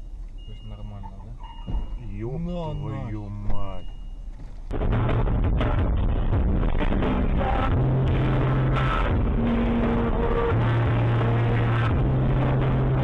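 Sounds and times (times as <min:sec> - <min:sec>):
steady noise: 0:00.0 - 0:13.0
electronic music bass notes: 0:04.7 - 0:13.0.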